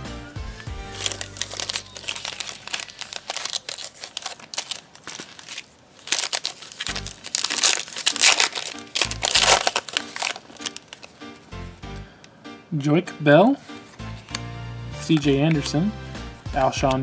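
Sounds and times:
foil wrapper crinkling: 0.8s - 11.2s
foil pack tearing open: 0.9s - 11.2s.

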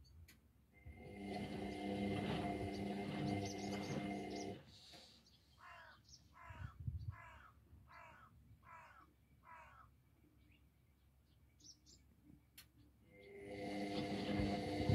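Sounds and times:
washing machine motor hum: 0.8s - 4.7s, 13.1s - 14.9s
bird calling: 2.7s - 4.6s, 5.3s - 9.9s.

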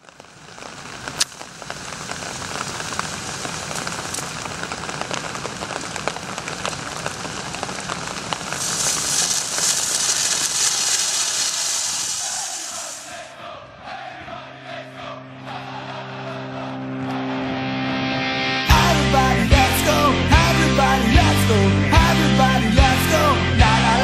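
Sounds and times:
flare crackling and fizzing: 0.0s - 13.3s.

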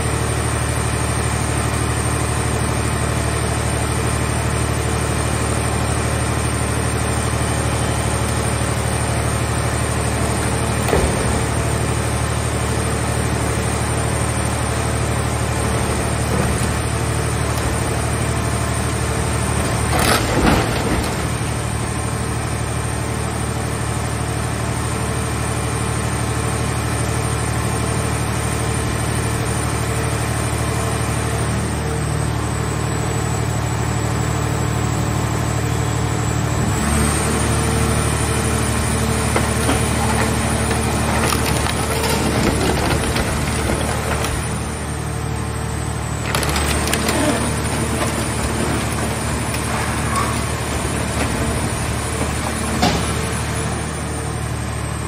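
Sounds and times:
hydraulic power unit humming: 0.0s - 55.0s
metal crunching: 38.8s - 45.2s, 46.0s - 54.0s.

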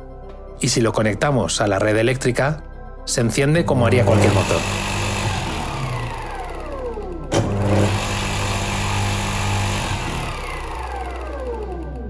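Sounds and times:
electric motor humming: 4.0s - 12.0s
motor spinning down whine: 4.0s - 12.0s.

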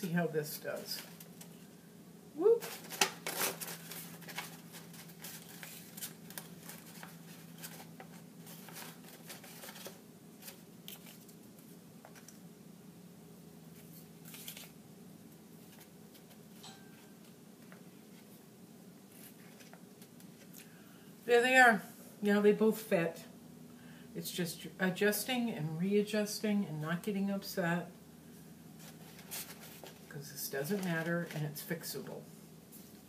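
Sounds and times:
paper rustling: 0.8s - 1.7s, 2.6s - 12.4s, 13.7s - 14.8s, 15.6s - 16.6s, 19.1s - 20.7s, 28.8s - 31.8s.

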